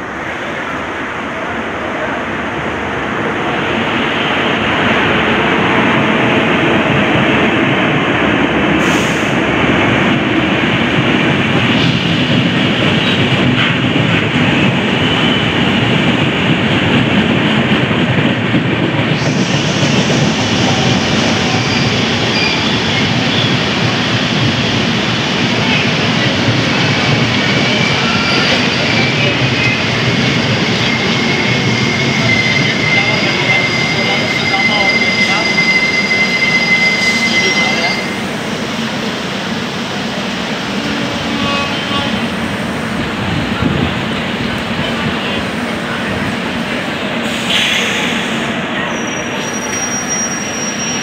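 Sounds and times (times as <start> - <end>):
train wheels rumbling on rails: 0.0 - 51.0
short high-pitched squeals: 30.6 - 38.2.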